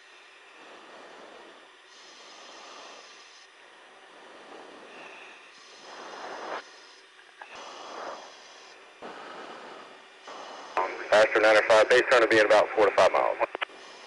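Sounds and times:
radio static hiss: 0:04.5 - 0:09.6, 0:10.2 - 0:14.0.

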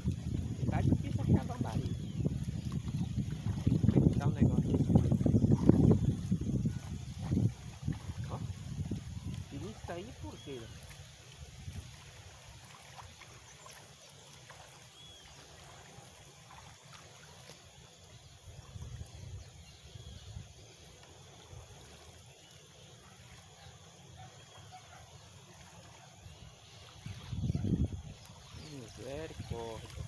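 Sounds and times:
wind rumble on microphone: 0:00.0 - 0:12.3, 0:18.2 - 0:20.7, 0:26.3 - 0:30.0
faint trickling water: 0:00.0 - 0:30.0.

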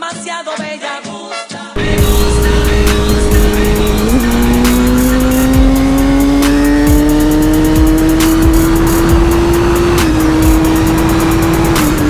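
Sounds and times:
sport bike engine accelerating: 0:01.8 - 0:12.0.

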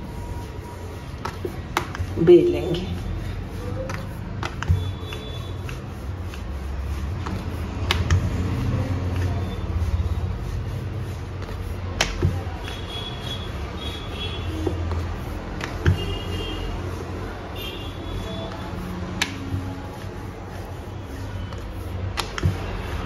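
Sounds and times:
rolling pin rolling dough on board: 0:00.0 - 0:23.0
sharp clicks and knocks: 0:11.4 - 0:12.8, 0:22.1 - 0:22.8.

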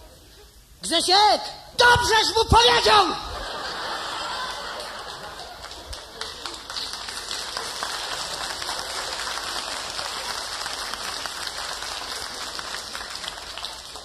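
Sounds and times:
audience applause: 0:03.7 - 0:14.0.

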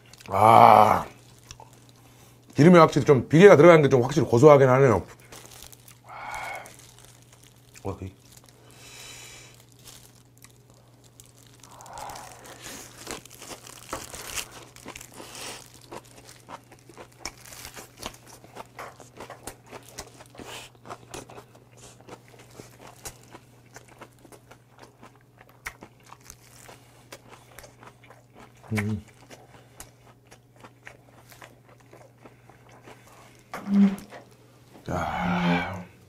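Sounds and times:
crunchy chewing: 0:00.0 - 0:02.6, 0:05.0 - 0:35.0
steady low hum: 0:00.0 - 0:36.0
plastic gloves crinkling: 0:04.1 - 0:20.4, 0:26.2 - 0:26.9.

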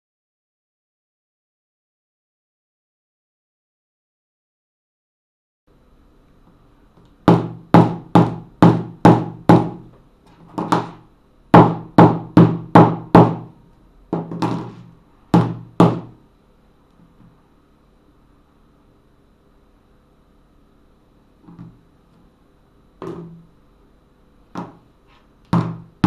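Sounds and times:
hammer knocking on phone: 0:07.3 - 0:13.5, 0:14.1 - 0:16.2, 0:25.5 - 0:26.0.

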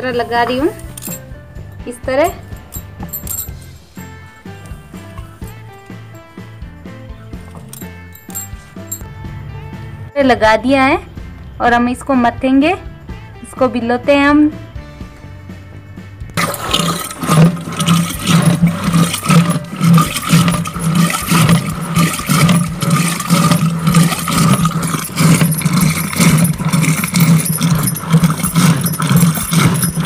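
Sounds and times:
wooden staff churning in clay pot: 0:16.4 - 0:30.0.

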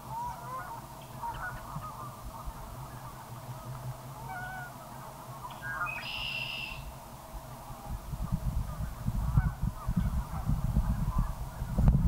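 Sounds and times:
geese honking: 0:00.0 - 0:06.9, 0:08.6 - 0:11.7
whistled bird call: 0:05.5 - 0:06.9.

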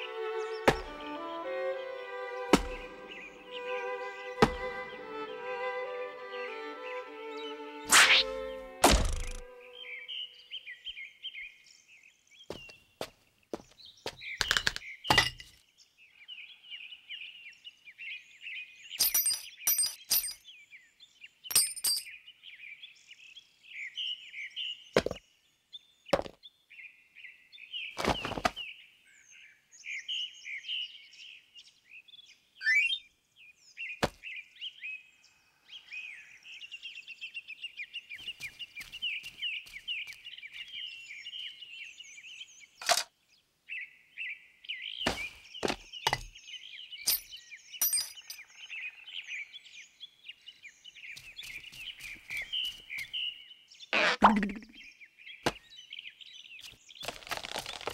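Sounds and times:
songbirds chirping: 0:00.0 - 0:57.9
sharp knocks and cracks: 0:00.7 - 0:01.0, 0:02.5 - 0:02.8, 0:04.4 - 0:04.7, 0:08.8 - 0:09.4, 0:14.4 - 0:15.5.

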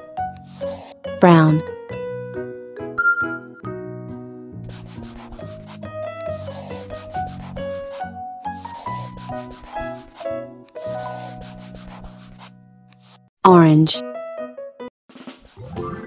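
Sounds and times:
scratchy scribbling: 0:00.4 - 0:01.0, 0:04.7 - 0:13.2, 0:15.2 - 0:15.8
simple instrumental tune: 0:03.0 - 0:03.6.

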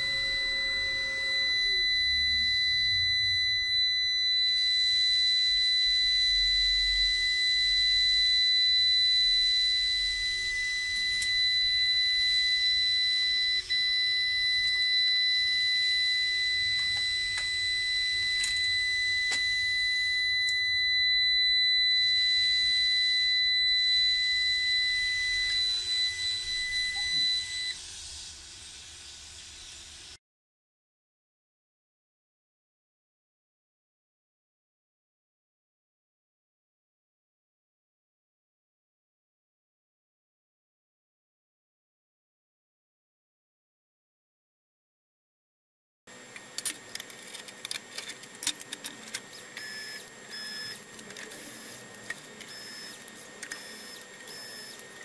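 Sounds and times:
high-pitched alarm buzzer: 0:00.0 - 0:27.8, 0:46.1 - 0:55.0.

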